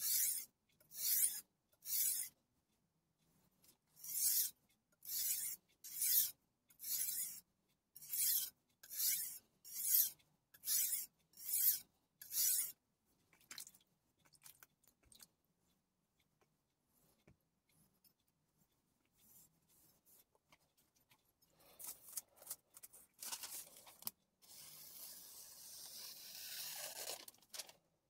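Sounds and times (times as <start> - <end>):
knife scraping on whetstone: 8.0 - 10.1.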